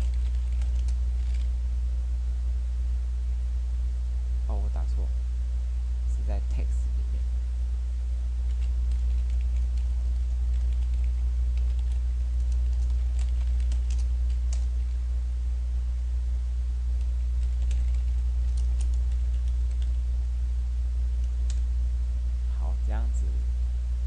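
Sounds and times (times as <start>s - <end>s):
keyboard typing: 0.0s - 1.5s, 8.4s - 15.0s, 17.0s - 20.0s
steady low hum: 0.0s - 24.0s.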